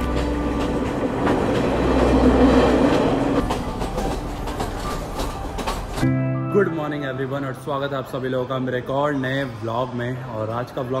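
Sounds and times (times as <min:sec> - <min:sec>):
train wheels rumbling on rails: 0:00.0 - 0:06.1.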